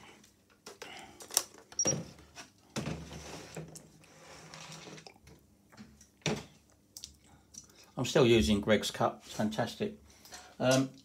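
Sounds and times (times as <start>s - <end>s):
soft rustling and scraping: 2.2s - 5.1s.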